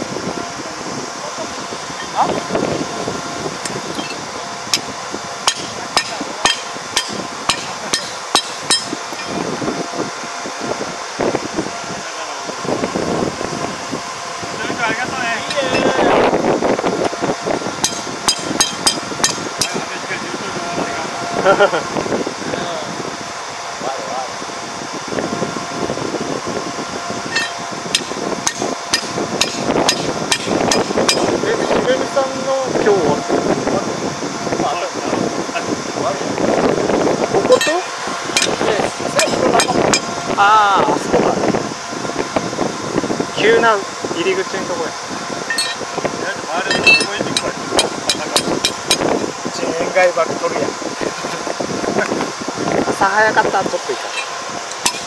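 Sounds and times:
hammer striking metal: 0:05.5 - 0:09.4, 0:17.8 - 0:19.8, 0:27.3 - 0:31.3, 0:39.2 - 0:40.0, 0:45.5 - 0:45.8, 0:46.7 - 0:49.0, 0:54.1 - 0:55.0.

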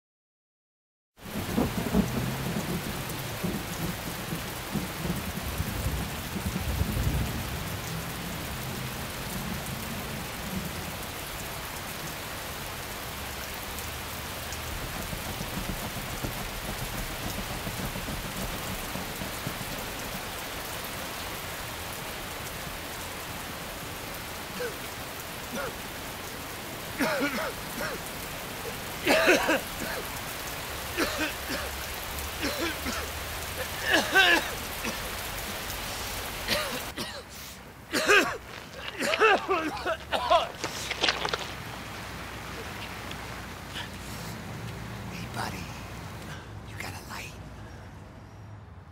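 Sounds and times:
low rolling thunder: 0:01.2 - 0:11.1, 0:13.2 - 0:23.0
heavy rain falling: 0:01.2 - 0:47.5.

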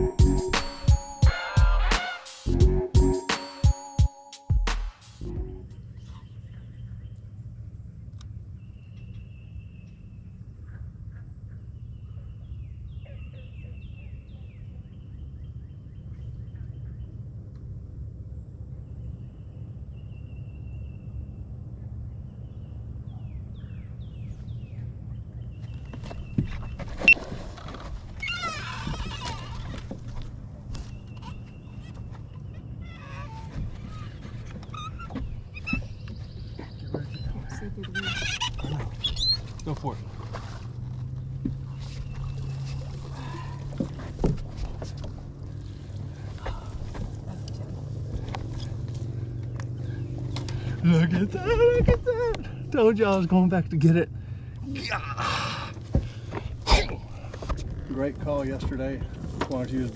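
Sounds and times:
low outdoor rumble: 0:05.2 - 0:25.9, 0:26.7 - 0:59.9
knocks and splashes: 0:26.4 - 0:28.2, 0:39.8 - 0:45.4
faint bird chirps: 0:30.8 - 0:39.5.

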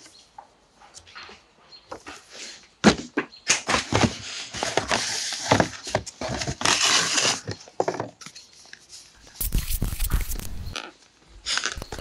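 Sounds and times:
cardboard and paper rustling: 0:03.8 - 0:10.8, 0:11.5 - 0:12.0.

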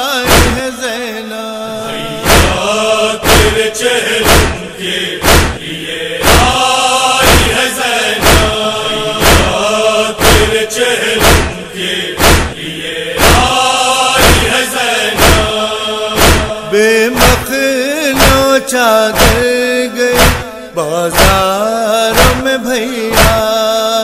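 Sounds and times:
group chanting in unison: 0:00.0 - 0:00.8, 0:01.6 - 0:23.5
chest-beating strikes: 0:00.3 - 0:00.6, 0:02.2 - 0:04.6, 0:05.2 - 0:10.6, 0:11.2 - 0:11.6, 0:12.2 - 0:12.6, 0:13.2 - 0:13.6, 0:14.2 - 0:14.6, 0:15.2 - 0:17.5, 0:19.2 - 0:19.5, 0:20.2 - 0:20.5.

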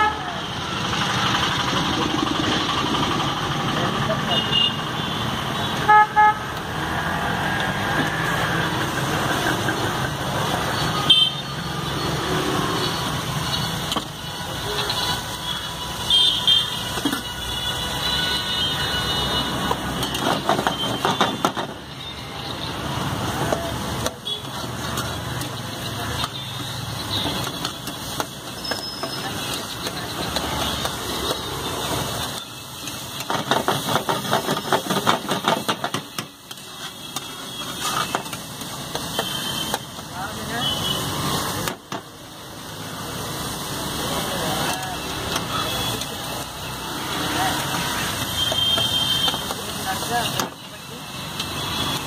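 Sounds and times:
vehicle horns tooting: 0:00.0 - 0:00.4, 0:04.3 - 0:06.6, 0:10.7 - 0:11.9, 0:12.6 - 0:22.8, 0:39.0 - 0:41.3, 0:44.6 - 0:50.8
street traffic: 0:00.0 - 0:52.0.

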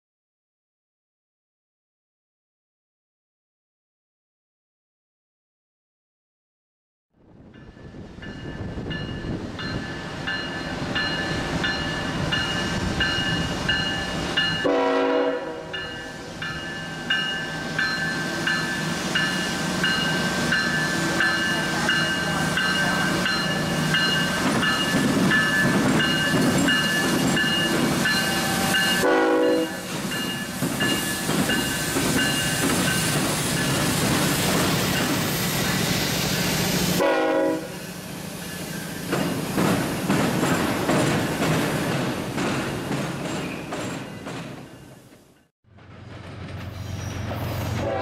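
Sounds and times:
diesel locomotive passing: 0:07.2 - 0:48.0
train wheels clattering on rails: 0:16.5 - 0:35.8, 0:38.6 - 0:48.0.

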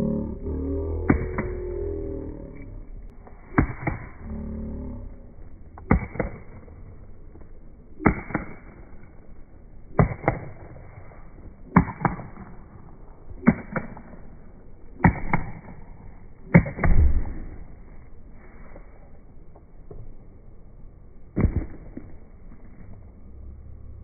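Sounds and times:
short low rumble: 0:00.0 - 0:07.8.

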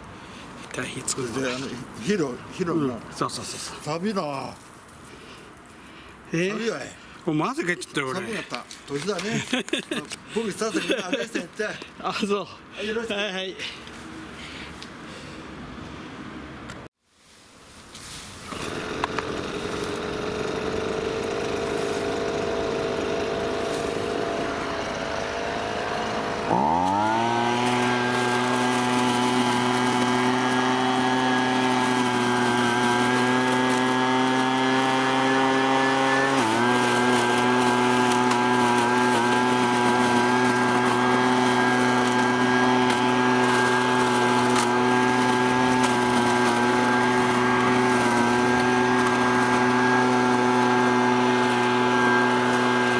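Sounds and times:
leaf blower vacuum engine running: 0:18.4 - 0:52.9.

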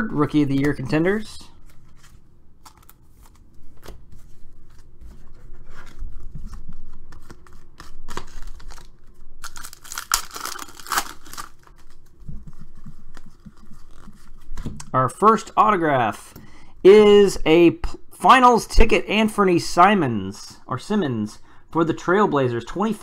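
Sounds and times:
foil wrapper rustling: 0:05.8 - 0:12.2
foil tearing open: 0:07.6 - 0:12.0.

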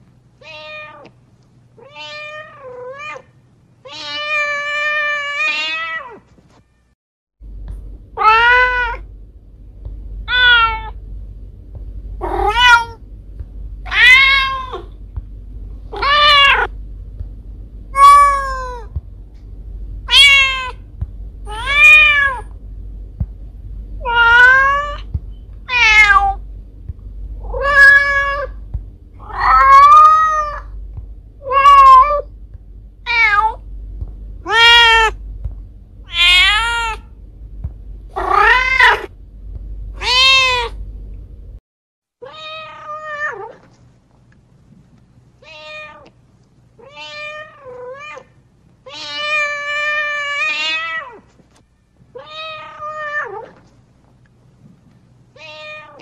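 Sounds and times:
cat meowing: 0:10.3 - 0:10.9, 0:12.2 - 0:13.0, 0:20.1 - 0:20.8, 0:25.7 - 0:26.4, 0:29.2 - 0:30.7, 0:34.4 - 0:35.2, 0:36.1 - 0:37.1, 0:38.2 - 0:39.1, 0:40.0 - 0:40.8, 0:55.4 - 0:56.0.

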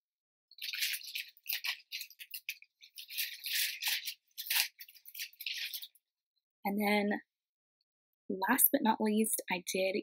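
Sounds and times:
plastic bag rustling: 0:00.5 - 0:06.0.

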